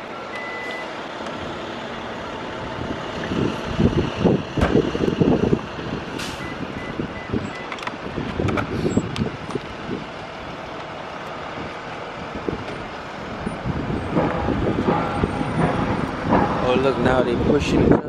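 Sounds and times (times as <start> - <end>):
bus engine rumbling: 0.0 - 18.0.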